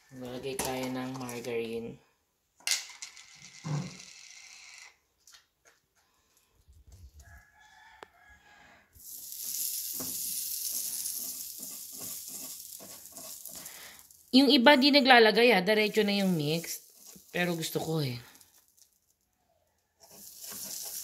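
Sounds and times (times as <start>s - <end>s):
margarine sizzling on hot plates: 9.0s - 18.8s, 20.0s - 21.0s.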